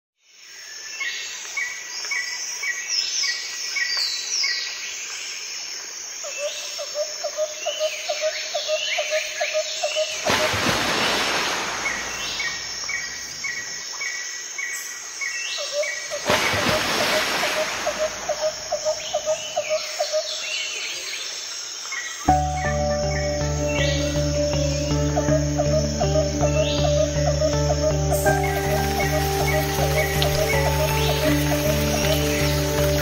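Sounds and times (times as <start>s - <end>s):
birds calling: 7.6s - 14.1s, 15.6s - 21.1s, 22.2s - 33.0s.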